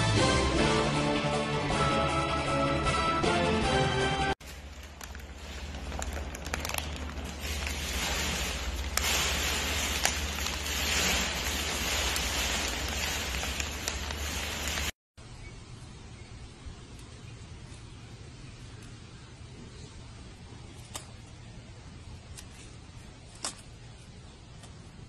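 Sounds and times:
paper wrapper crinkling: 4.4s - 15.0s.

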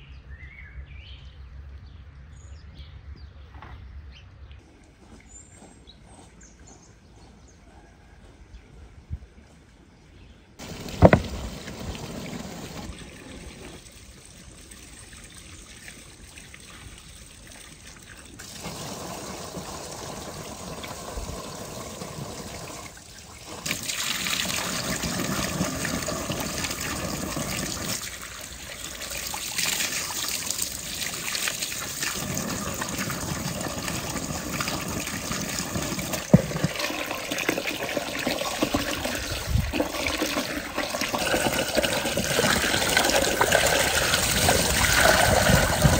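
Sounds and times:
water running and trickling: 10.6s - 45.9s.

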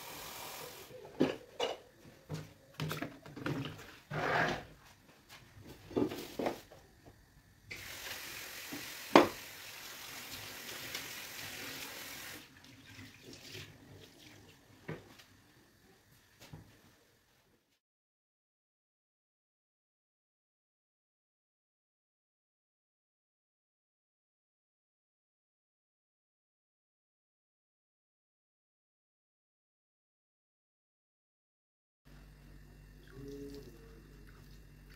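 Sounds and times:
water running and splashing: 7.7s - 14.6s.

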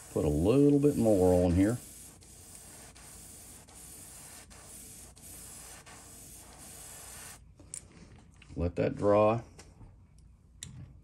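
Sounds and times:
airbrush hissing: 0.0s - 7.4s.

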